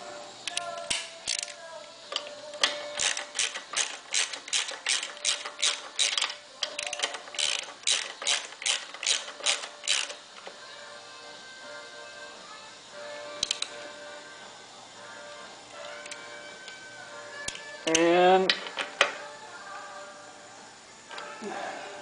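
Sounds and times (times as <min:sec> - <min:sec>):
ratchet wrench clicking: 0:00.4 - 0:10.6, 0:13.4 - 0:13.7, 0:17.5 - 0:19.2.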